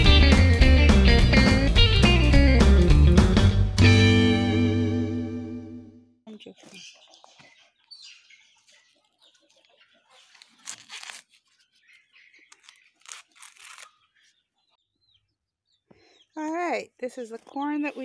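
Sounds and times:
corn husks tearing: 0:10.2 - 0:14.1.

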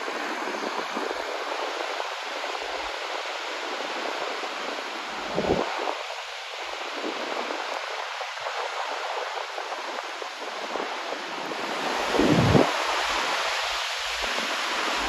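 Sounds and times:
waterfall roaring: 0:00.0 - 0:15.0
wind buffeting microphone: 0:00.0 - 0:15.0.

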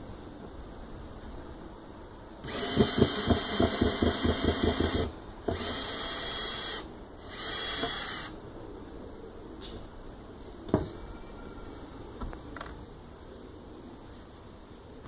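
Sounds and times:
cordless drill whine: 0:02.4 - 0:08.4.

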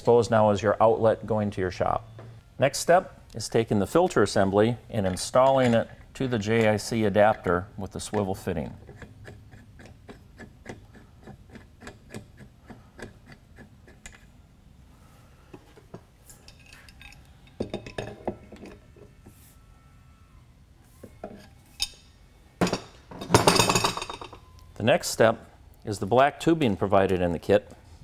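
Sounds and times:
filter housings clattering: 0:04.9 - 0:09.1, 0:15.6 - 0:18.8, 0:22.6 - 0:24.4.

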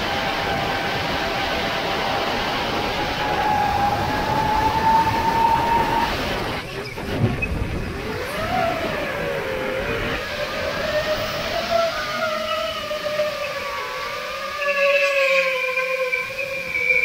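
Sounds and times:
drone propellers whining: 0:00.0 - 0:17.0
rushing wind: 0:00.0 - 0:17.0.

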